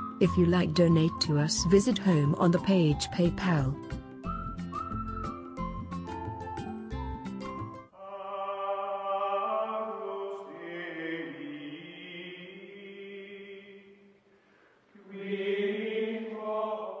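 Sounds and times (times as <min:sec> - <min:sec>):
slow chant-like singing voices: 0:08.0 - 0:14.2, 0:14.9 - 0:17.0.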